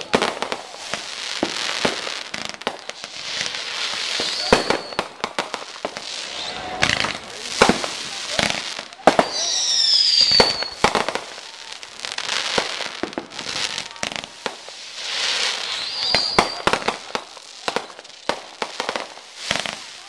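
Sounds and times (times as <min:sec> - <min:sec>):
fireworks bangs and crackling: 0:00.0 - 0:20.0
firework whistle: 0:02.8 - 0:18.0.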